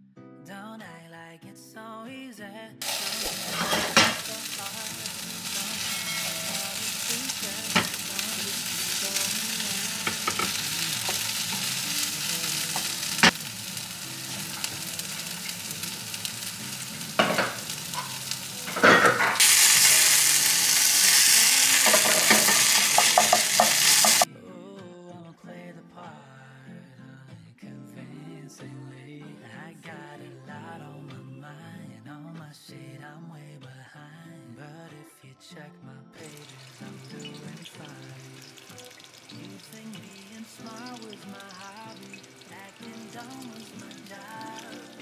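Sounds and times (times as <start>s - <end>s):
food sizzling in hot oil: 2.8s - 24.3s, 36.2s - 45.0s.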